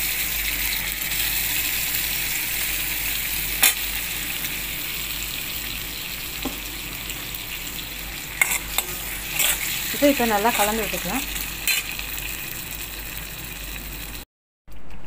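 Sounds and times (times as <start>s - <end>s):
oil sizzling in a pan: 0.0s - 14.3s.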